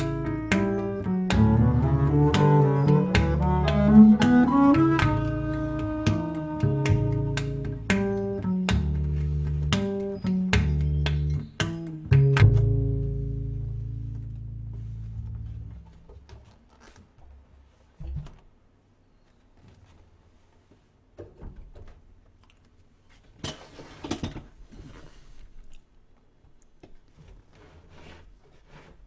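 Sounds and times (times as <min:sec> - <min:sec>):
plucked double bass note: 0:00.0 - 0:15.8.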